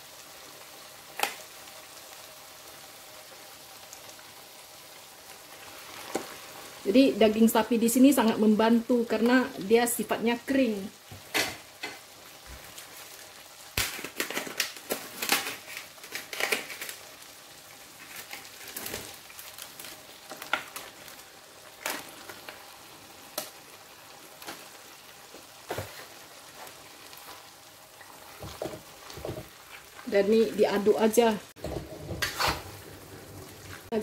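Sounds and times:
spice paste sizzling in oil: 0:00.0 - 0:34.0
spatula scraping a wok: 0:31.6 - 0:33.9.

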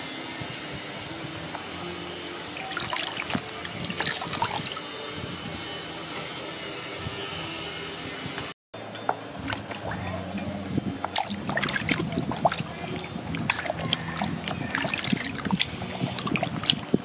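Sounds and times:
water splashing in a plastic basin: 0:02.5 - 0:04.8, 0:09.4 - 0:17.0.

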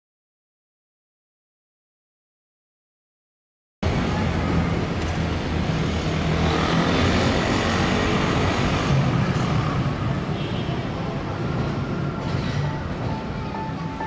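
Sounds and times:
road noise hiss: 0:03.8 - 0:14.0
traffic rumble: 0:03.8 - 0:14.0.

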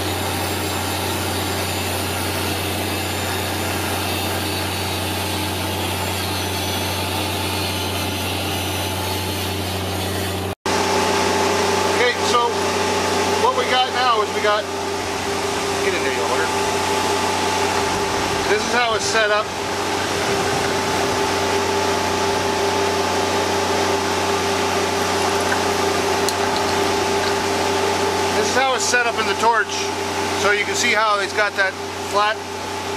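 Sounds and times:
angle grinder grinding steel: 0:00.0 - 0:10.6, 0:13.4 - 0:29.8
steady machine hum: 0:00.0 - 0:32.9
low hum: 0:14.3 - 0:28.5.

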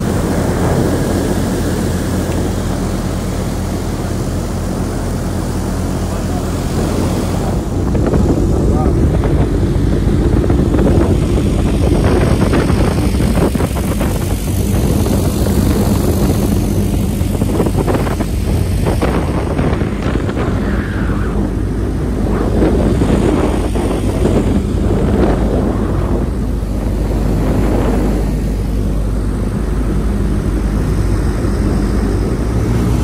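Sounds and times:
boat motor running: 0:00.0 - 0:33.0
rushing water: 0:00.0 - 0:33.0
wind noise: 0:00.0 - 0:33.0.

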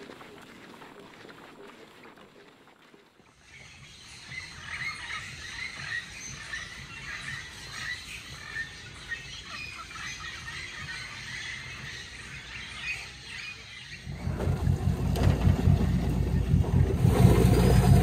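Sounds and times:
birds chirping and calling: 0:03.5 - 0:16.6
low steady rumble: 0:14.0 - 0:18.0.

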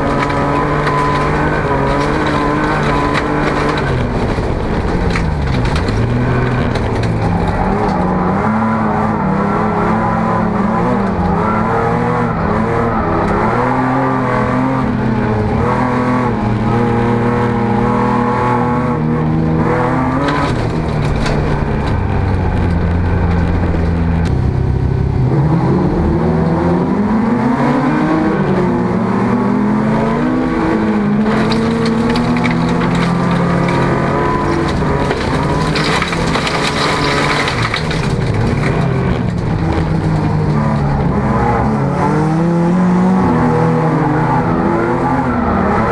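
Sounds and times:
tyre and gravel noise: 0:00.0 - 0:18.4, 0:19.4 - 0:24.3, 0:31.0 - 0:41.7
car engine revving through gears: 0:00.0 - 0:45.9.

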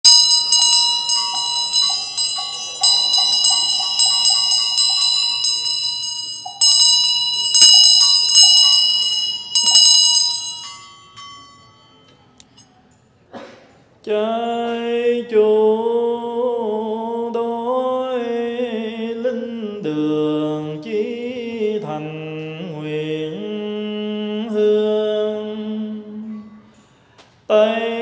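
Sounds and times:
ritual bells ringing: 0:00.0 - 0:13.0.

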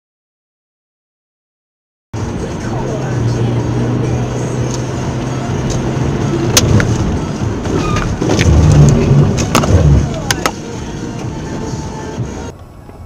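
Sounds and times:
car engine and road hum: 0:02.2 - 0:13.0
low rumble: 0:03.7 - 0:10.3.

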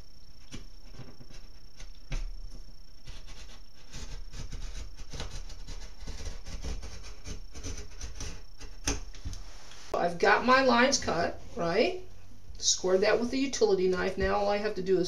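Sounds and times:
utility knife scraping drywall: 0:00.5 - 0:09.0.

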